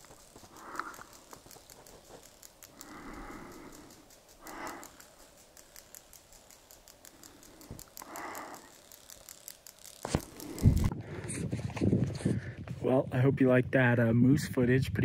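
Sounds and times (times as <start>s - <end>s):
faint irregular ticking: 0.0s - 10.9s.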